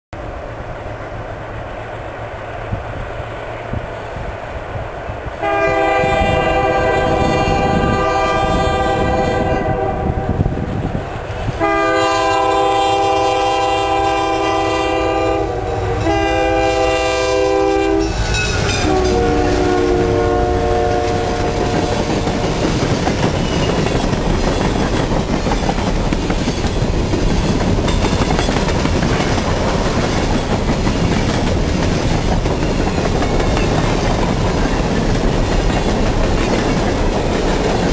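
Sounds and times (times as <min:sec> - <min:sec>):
train air horn blasts: 0:05.4 - 0:10.7, 0:11.5 - 0:22.7
train wheels clacking on rails: 0:16.0 - 0:37.9.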